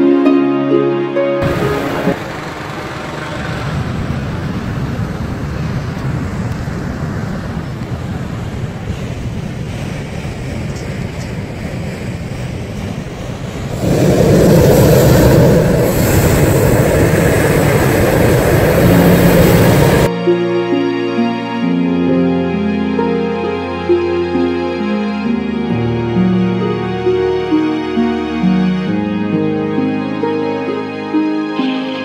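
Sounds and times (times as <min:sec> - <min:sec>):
music: 0:00.0 - 0:02.3, 0:18.8 - 0:32.0
propane burner blasting: 0:01.4 - 0:20.1.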